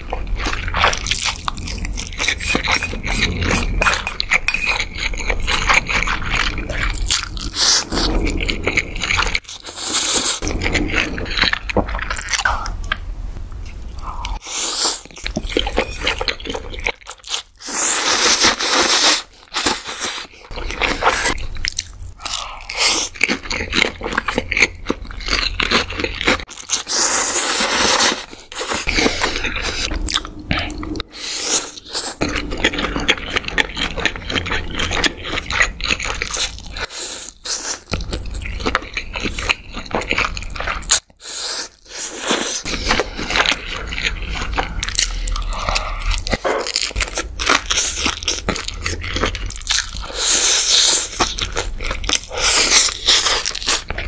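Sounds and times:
moist chewing and crunching: 19.5 - 41.1, 41.8 - 54.0.

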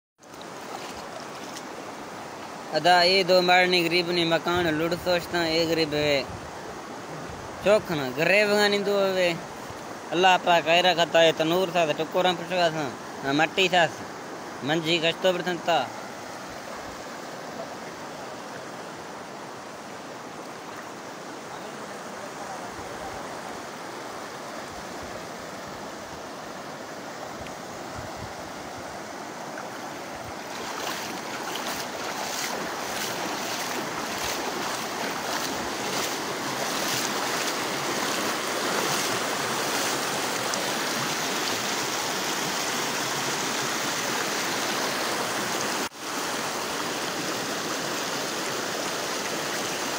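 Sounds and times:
floodwater rushing: 0.2 - 49.9.

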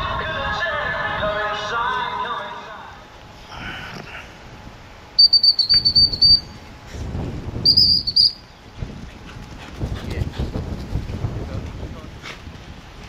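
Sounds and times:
trilling whistle blasts: 5.2 - 6.6, 7.6 - 8.5.

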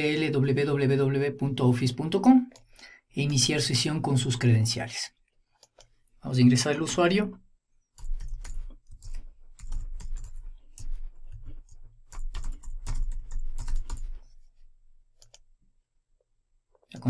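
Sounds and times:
typing on a keyboard: 8.0 - 14.2.

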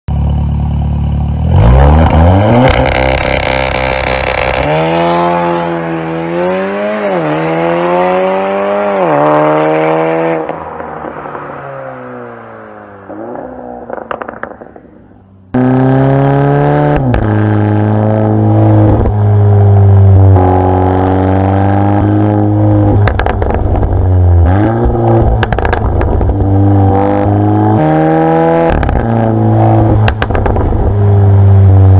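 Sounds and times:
car engine revving: 0.1 - 31.9
exhaust cracks: 2.0 - 4.7, 13.2 - 15.5, 23.0 - 26.9, 29.8 - 31.1.

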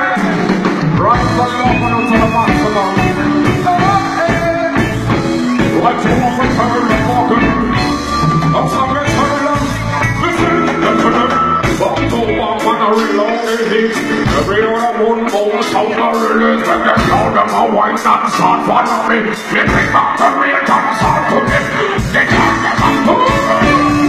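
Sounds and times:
live band music: 0.0 - 24.0
person singing: 0.0 - 24.0
steady drum beat: 0.0 - 24.0.

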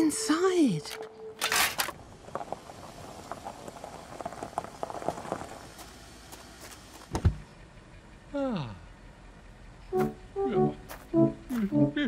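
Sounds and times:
car rolling on gravel: 1.4 - 8.2
footsteps on gravel: 1.5 - 7.1, 10.0 - 11.8.

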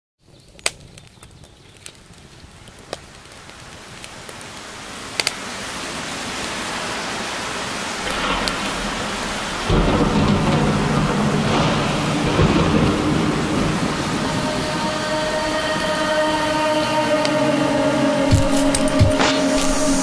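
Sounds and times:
sharp crackles: 0.2 - 17.4, 18.3 - 20.0
rain and thunderstorm: 0.6 - 20.0
deep bass tones: 8.1 - 14.5.

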